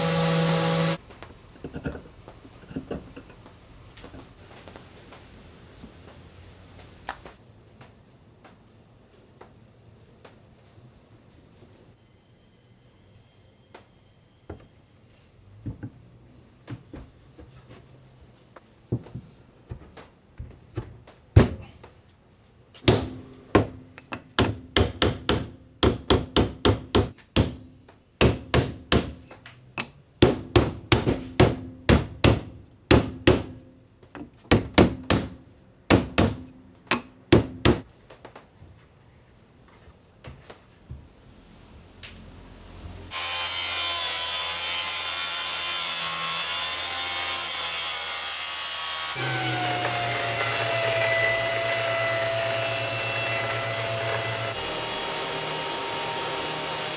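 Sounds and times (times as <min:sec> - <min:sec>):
hammer striking wooden block: 0:22.8 - 0:33.7, 0:34.5 - 0:37.9.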